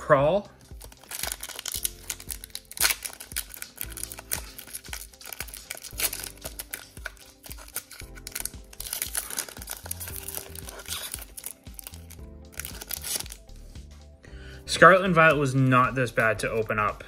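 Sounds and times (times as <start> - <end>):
background music: 0.0 - 17.0
foil wrapper crinkling and tearing: 0.7 - 13.5.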